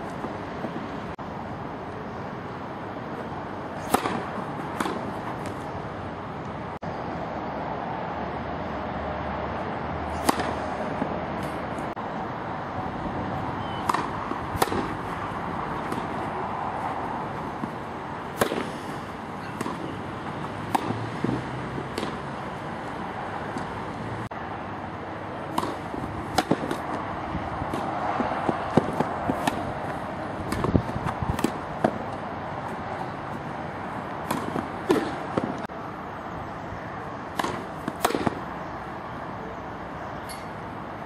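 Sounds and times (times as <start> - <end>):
racket striking ball: 3.8 - 5.8, 10.1 - 11.9, 13.6 - 22.4, 25.4 - 33.2, 34.1 - 35.7, 37.3 - 38.5.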